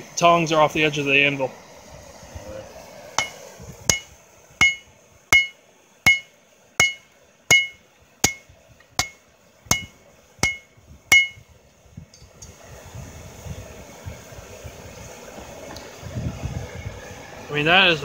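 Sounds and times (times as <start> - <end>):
hammer striking hot steel on anvil: 3.2 - 11.5.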